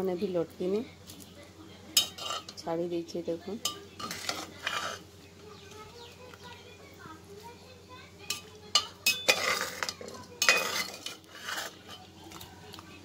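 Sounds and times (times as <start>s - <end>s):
metal skimmer clinking on pot: 2.0s - 2.7s, 3.6s - 5.0s, 8.2s - 12.1s.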